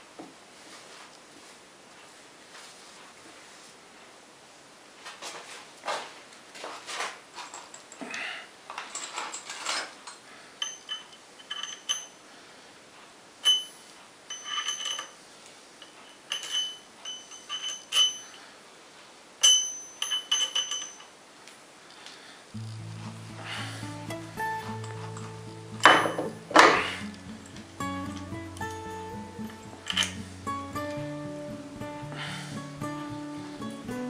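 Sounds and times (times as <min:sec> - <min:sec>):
ringing metal clinks: 0:10.6 - 0:12.2, 0:13.4 - 0:15.2, 0:15.8 - 0:18.4, 0:19.4 - 0:21.2, 0:24.4 - 0:30.2
metal scraping and rubbing: 0:22.6 - 0:30.4.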